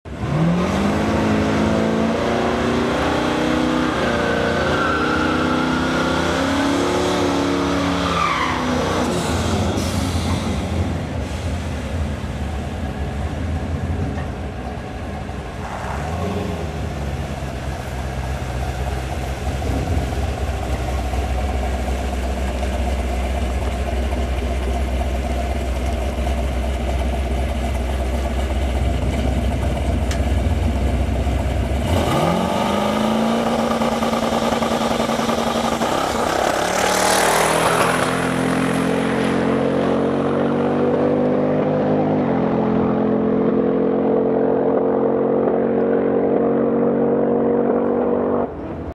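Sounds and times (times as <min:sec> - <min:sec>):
car engine idling and revving: 0:00.1 - 0:48.9
car engine accelerating away: 0:15.6 - 0:48.9.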